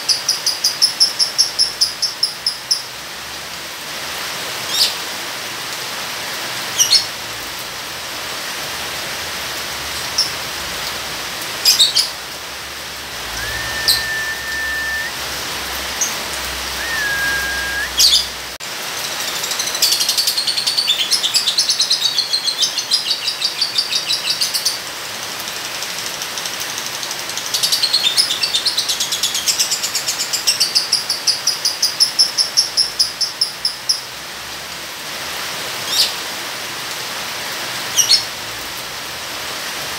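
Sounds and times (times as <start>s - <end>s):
rain hissing: 2.9s - 20.5s
lovebird chirping and trilling: 13.3s - 15.1s, 16.0s - 18.3s.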